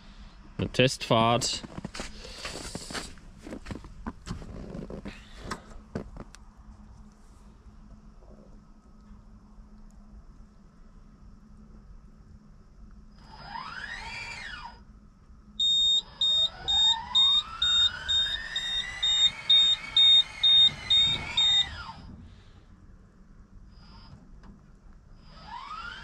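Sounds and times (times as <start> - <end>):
motor whine: 13.1 - 14.9, 15.6 - 22.8, 25.1 - 26.0
warning beeper: 15.6 - 22.0.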